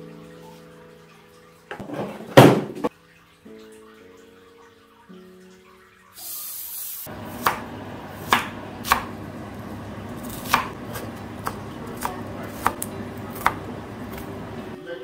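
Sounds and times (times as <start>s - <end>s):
soft music: 0.0s - 2.2s, 2.9s - 6.7s, 11.4s - 15.0s
knife chopping on wooden board: 7.1s - 9.2s, 10.2s - 14.4s.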